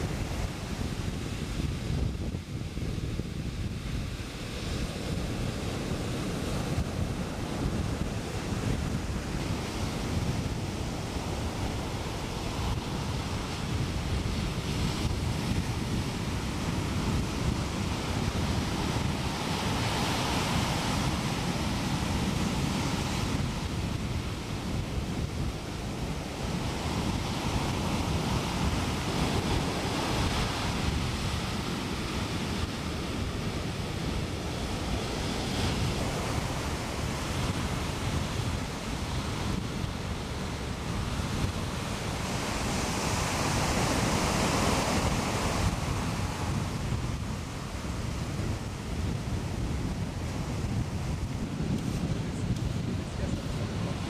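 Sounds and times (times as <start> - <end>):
ocean surf on sandy beach: 0.0 - 54.0
wind rumbling on microphone: 0.0 - 54.0.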